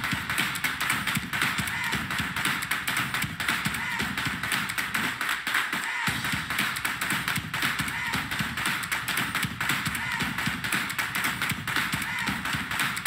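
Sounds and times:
audience cheering: 1.4s - 2.4s, 3.5s - 4.4s, 5.6s - 10.6s, 11.8s - 13.0s
tapping and stomping on wood: 6.1s - 13.0s.

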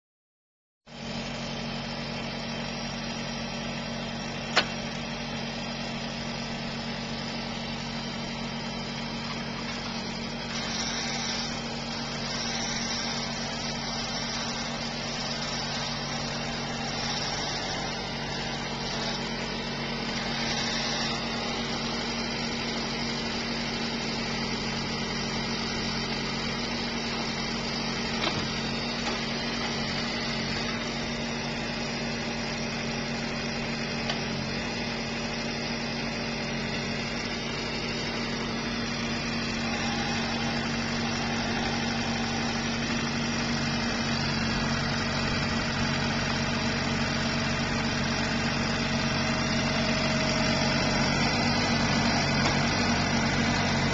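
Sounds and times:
engine running: 0.9s - 53.9s
hydraulic hiss: 9.3s - 24.4s.

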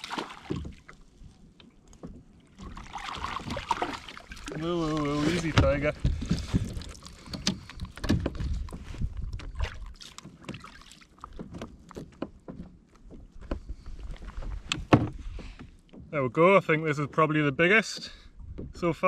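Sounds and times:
knocks and taps on a kayak: 0.4s - 1.0s, 5.4s - 10.7s, 11.3s - 13.7s, 14.6s - 16.1s, 18.0s - 19.0s.

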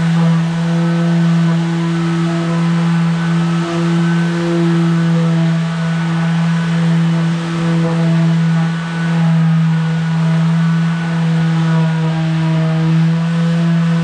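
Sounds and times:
power sander on wood: 0.0s - 14.0s.

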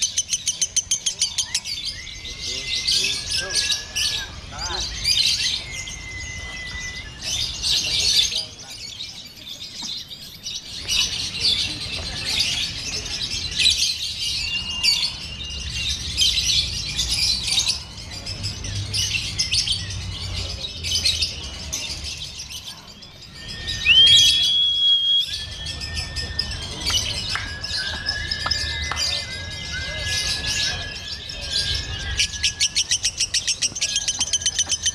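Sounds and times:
whistle-like bird notes: 5.3s - 7.6s, 23.3s - 33.2s.

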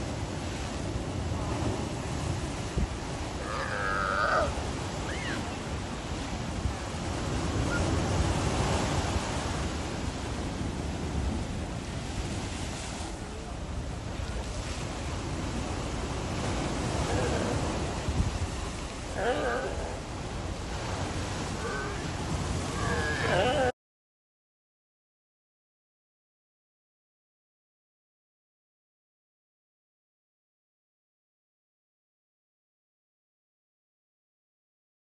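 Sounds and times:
surf breaking over rocks: 0.0s - 23.7s
sea lion call: 3.2s - 5.6s, 16.5s - 18.0s, 19.0s - 23.7s.

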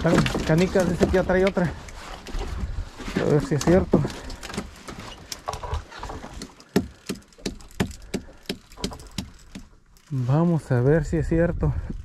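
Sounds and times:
sharp clicks and knocks: 3.2s - 10.1s.

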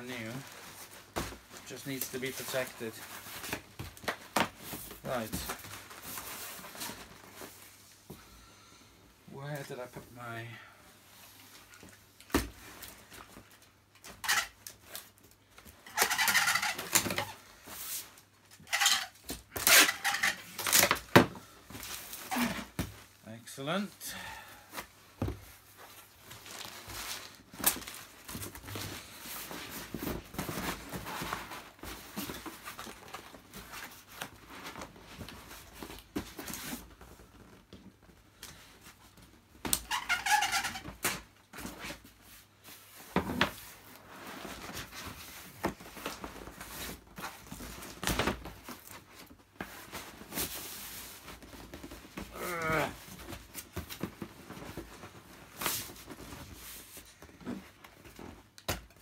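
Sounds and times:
cardboard and newspaper rustling: 0.0s - 8.0s, 11.2s - 59.0s
packing tape screeching: 14.0s - 14.8s, 15.8s - 17.4s, 18.6s - 21.0s, 22.1s - 22.8s, 39.6s - 41.2s.

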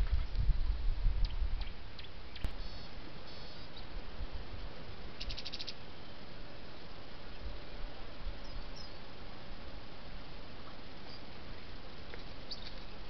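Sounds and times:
low wind rumble: 0.0s - 13.0s
microphone hiss: 0.0s - 13.0s
bird trill: 1.6s - 3.9s, 5.1s - 6.3s, 8.4s - 9.1s, 12.2s - 13.0s
short high bird chirps: 2.0s - 3.9s, 5.2s - 5.8s.

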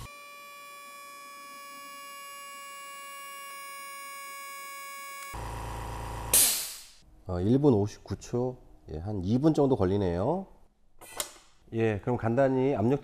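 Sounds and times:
compressor high whine: 0.0s - 6.4s
compressor motor hum: 0.0s - 6.4s.

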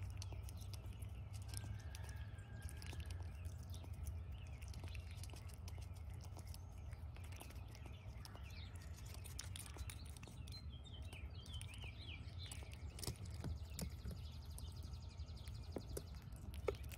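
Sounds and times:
bird chirping: 0.0s - 16.9s
low outdoor rumble: 0.0s - 16.9s
squirrel nibbling: 0.0s - 16.9s
paws tapping on plastic: 12.4s - 16.9s.

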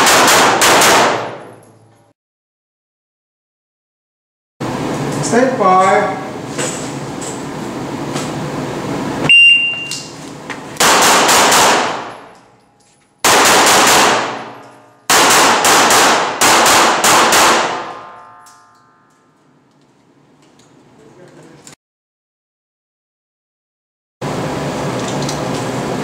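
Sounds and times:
pistol shots echoing indoors: 0.0s - 1.7s, 10.8s - 12.5s, 13.2s - 19.3s
shot timer beep: 9.3s - 10.1s.

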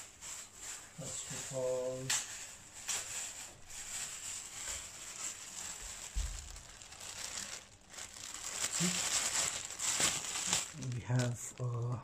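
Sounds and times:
plastic and cardboard rustling: 0.0s - 12.0s.

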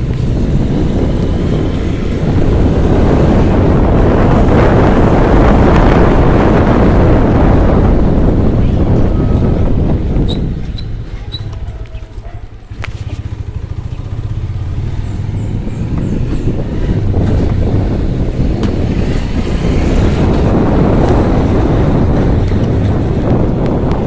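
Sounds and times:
wind rushing over microphone: 0.0s - 24.0s
small motorcycle engine running: 12.6s - 18.0s.

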